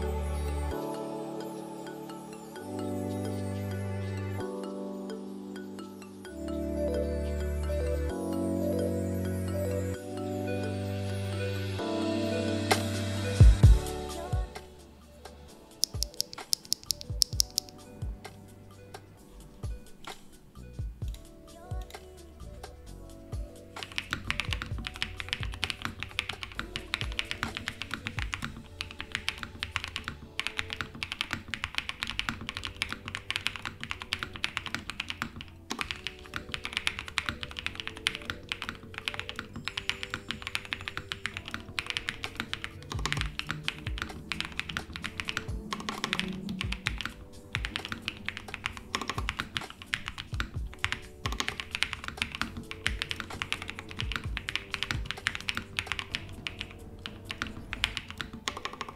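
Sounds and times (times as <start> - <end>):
rapid mechanical keyboard typing: 15.8 - 17.8, 23.8 - 58.9.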